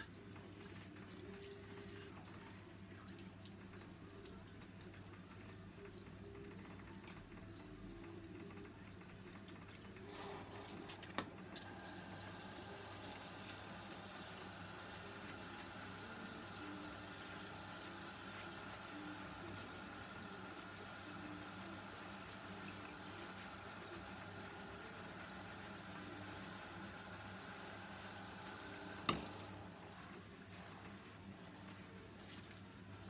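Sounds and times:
shower spray running over hair: 9.9 - 11.0.

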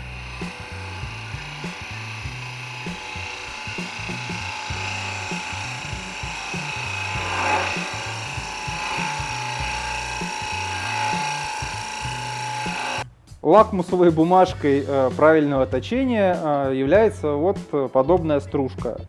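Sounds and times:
gouge cutting wood hiss: 0.0 - 13.0
lathe motor whine: 0.0 - 13.0
background music: 0.0 - 19.0.

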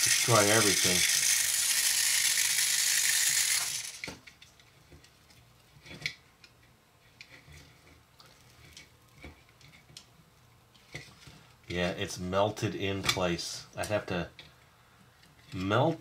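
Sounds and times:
loud steady hiss: 0.0 - 4.1
plastic toy parts clicking: 0.0 - 4.4.

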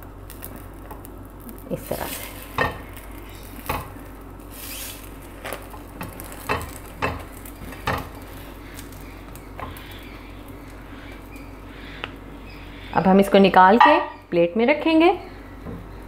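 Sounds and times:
egg sizzling in oil: 0.0 - 14.4
spatula tapping and scraping pan: 2.5 - 2.9, 6.0 - 8.3.

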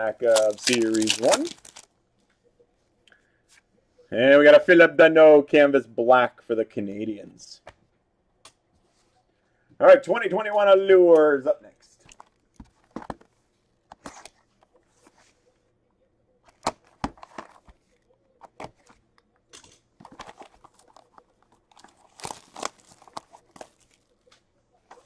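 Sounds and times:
wrappers tearing and crinkling: 0.2 - 1.9, 20.0 - 24.2.

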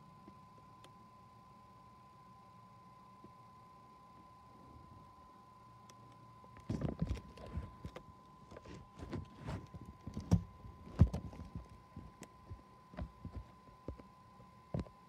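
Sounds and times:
faint steady whine: 0.0 - 15.0.

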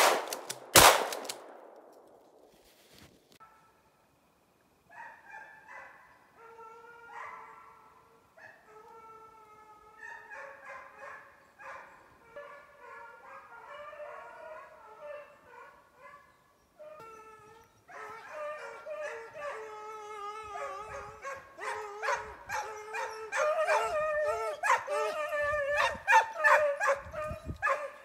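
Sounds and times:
hounds baying: 9.9 - 28.0.

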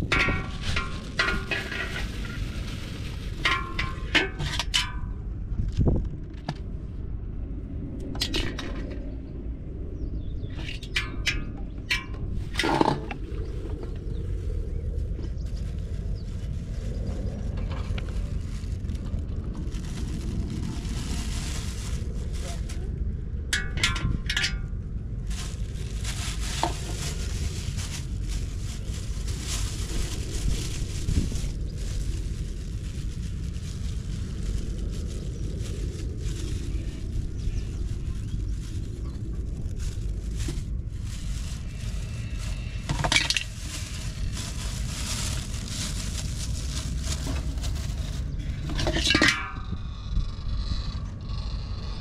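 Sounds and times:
plastic bag crinkling: 0.0 - 4.1, 12.4 - 23.0, 25.2 - 49.8
wind rumbling on microphone: 0.0 - 52.0.

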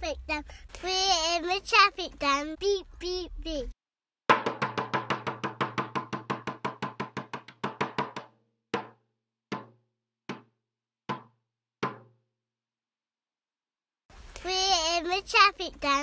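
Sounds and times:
percussion instrument beats: 4.3 - 9.7.

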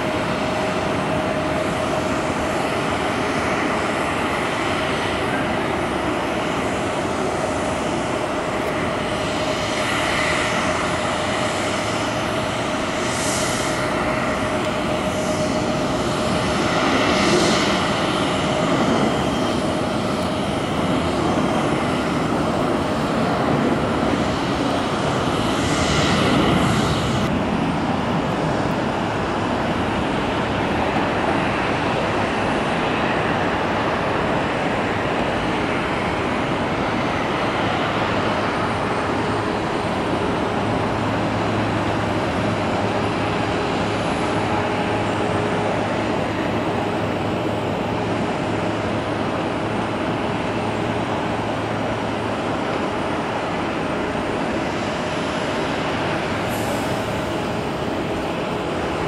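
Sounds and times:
jet engine rumble: 0.0 - 59.0.

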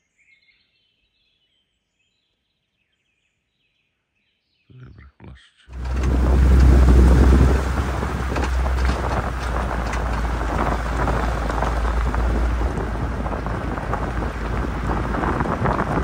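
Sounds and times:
low engine rumble: 5.7 - 16.0
tyres crunching over gravel: 5.7 - 16.0
wind against microphone: 5.7 - 16.0.

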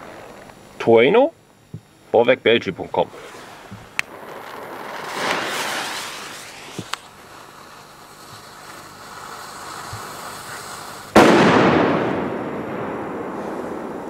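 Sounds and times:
firecracker fuse hissing: 2.8 - 12.3, 13.0 - 14.0.

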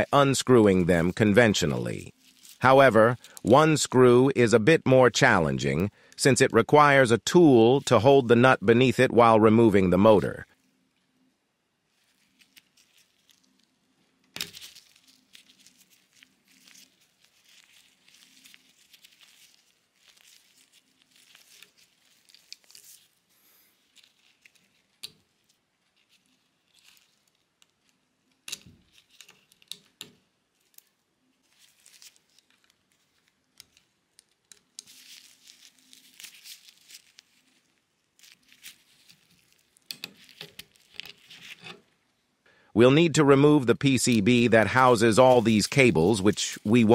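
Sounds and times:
gloved hands rustling: 0.0 - 3.7, 11.8 - 42.2, 43.8 - 46.9.

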